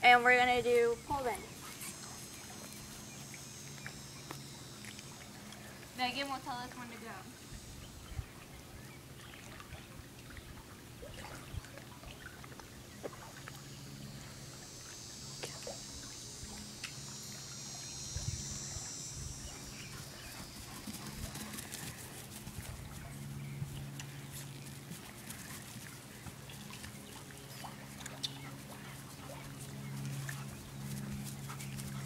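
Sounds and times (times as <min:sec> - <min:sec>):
low steady hum: 0:00.0 - 0:32.0
high buzzing trill: 0:13.7 - 0:20.8.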